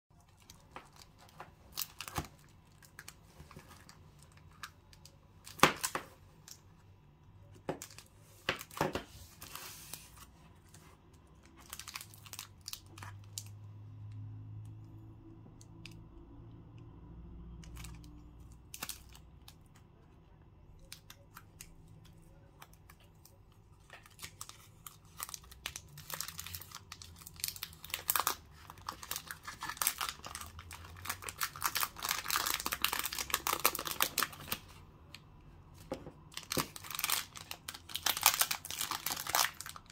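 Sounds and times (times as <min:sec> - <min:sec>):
plastic wrappers crinkling: 0:00.2 - 0:06.6, 0:07.7 - 0:13.6, 0:20.8 - 0:34.8, 0:35.8 - 0:39.9
wrapper tearing open: 0:11.6 - 0:13.5, 0:24.0 - 0:34.6, 0:36.3 - 0:39.9.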